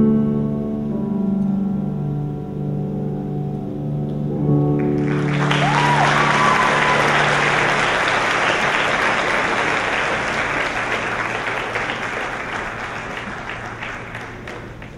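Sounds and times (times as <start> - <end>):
audience applauding: 4.8 - 14.9.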